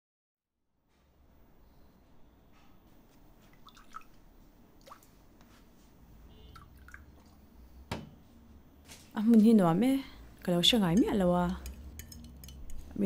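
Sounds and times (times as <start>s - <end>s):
cutlery and dishes clinking: 10.9s - 13.0s.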